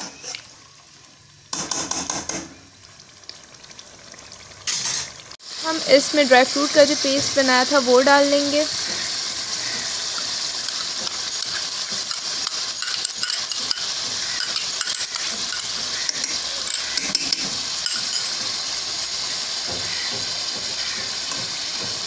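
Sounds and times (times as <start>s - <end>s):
curry sizzling in a pot: 0.0s - 22.0s
metal spoon clinking on glass bowl: 11.4s - 15.7s, 16.6s - 18.3s.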